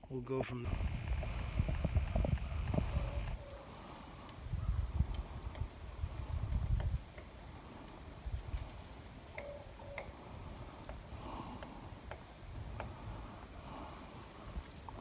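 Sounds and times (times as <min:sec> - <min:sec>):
wind rumble on microphone: 0:00.6 - 0:03.5, 0:04.4 - 0:07.1
brief tones: 0:09.4 - 0:10.1.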